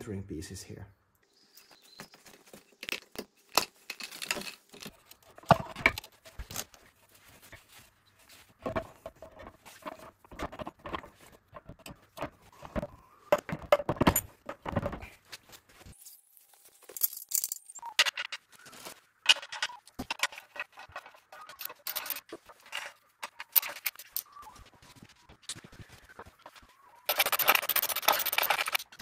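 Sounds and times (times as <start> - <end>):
metallic clinks and scrapes: 15.9 - 24.4, 27.1 - 29.0.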